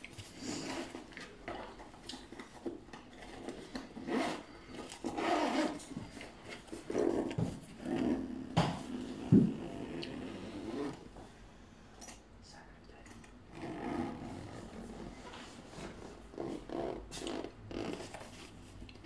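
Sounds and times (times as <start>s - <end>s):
zipper pull fiddling: 0.4s - 1.2s, 3.2s - 6.0s, 6.7s - 11.1s, 13.5s - 15.1s, 16.3s - 18.4s.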